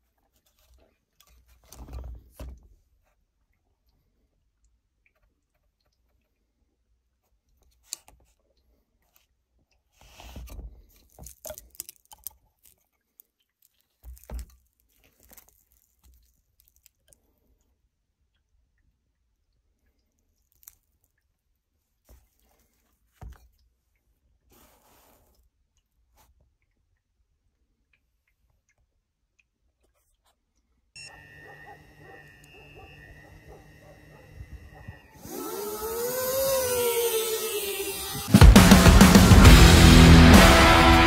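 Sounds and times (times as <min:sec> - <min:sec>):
handling rustles and clicks: 0:07.5 - 0:17.3.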